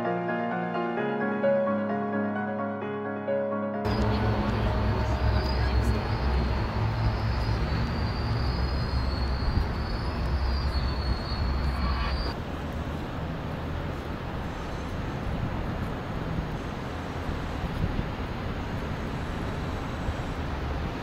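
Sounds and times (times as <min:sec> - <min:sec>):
city street noise: 0:00.0 - 0:21.0
train rumbling past: 0:03.9 - 0:12.4.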